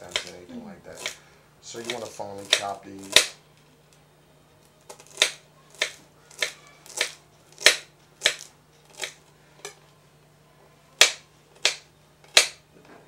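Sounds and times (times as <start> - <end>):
knife chopping on cutting board: 0.0 - 1.2, 1.8 - 3.4, 4.9 - 9.2, 11.0 - 12.6.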